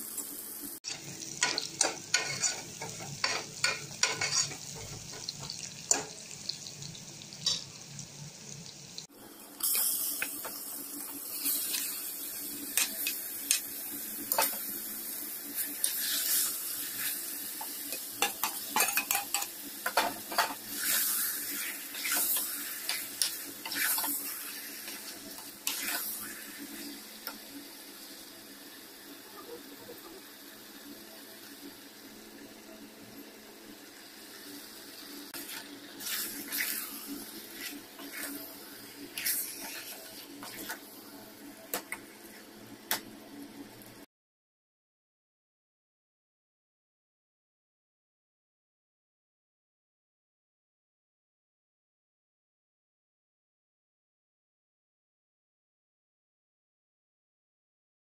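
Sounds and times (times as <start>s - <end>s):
onions sizzling in hot fat: 0.0s - 44.1s
ladle stirring and scraping pot: 0.9s - 6.1s, 18.2s - 26.9s, 35.4s - 40.8s.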